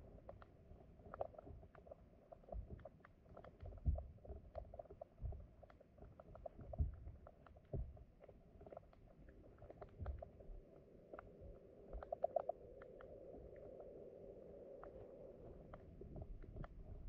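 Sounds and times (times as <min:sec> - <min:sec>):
stream water heard underwater: 0:00.0 - 0:17.0
muffled underwater thumps: 0:03.6 - 0:04.3, 0:05.2 - 0:05.5, 0:06.6 - 0:08.0.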